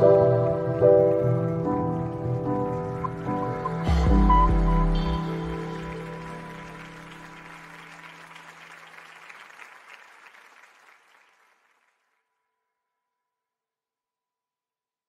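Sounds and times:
music: 0.0s - 9.7s
audience applauding: 0.0s - 12.1s.

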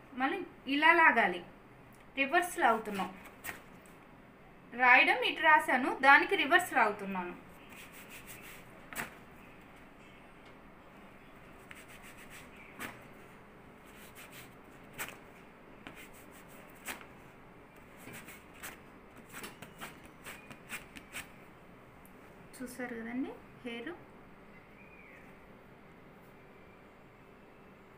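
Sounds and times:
hand rubbing waxing strip: 7.6s - 9.1s, 11.6s - 13.0s, 13.9s - 15.2s, 18.0s - 21.3s.

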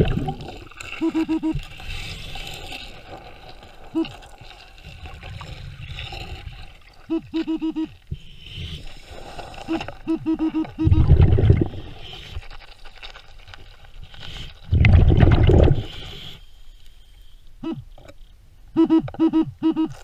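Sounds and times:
air bubbles rushing: 0.0s - 1.0s, 10.8s - 12.1s, 14.6s - 16.0s
metal detector short beeps: 18.8s - 20.0s.

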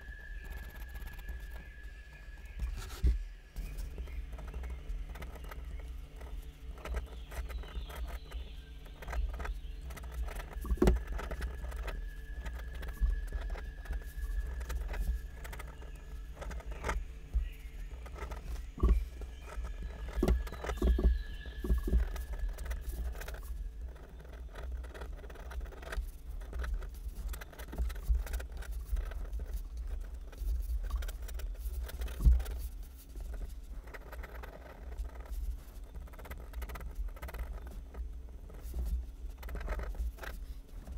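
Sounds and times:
low steady hum: 0.0s - 40.9s
pen nib scratching on paper: 18.0s - 37.8s, 38.4s - 40.9s.

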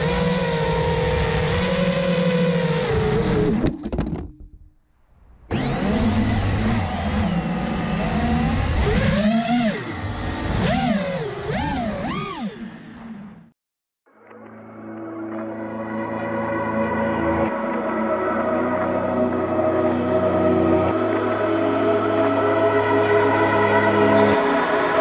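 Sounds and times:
quadcopter motors whining: 0.0s - 3.8s, 5.5s - 13.5s.

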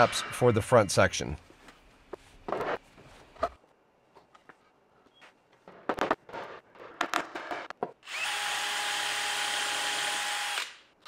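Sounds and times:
cordless drill running: 8.0s - 10.8s.

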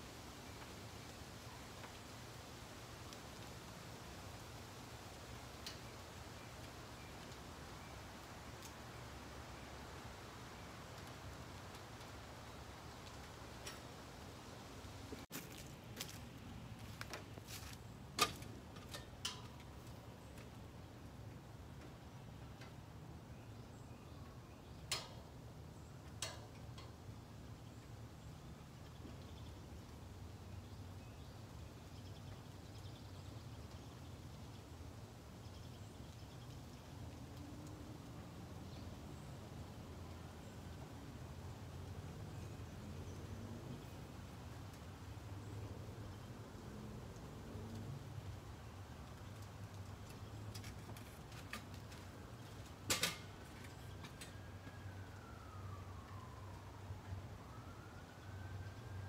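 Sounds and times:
distant siren wailing: 54.0s - 59.0s.

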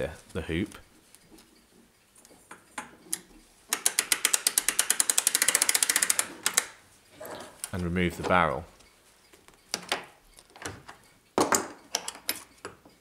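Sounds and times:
ratchet clicking rapidly: 3.7s - 6.7s.

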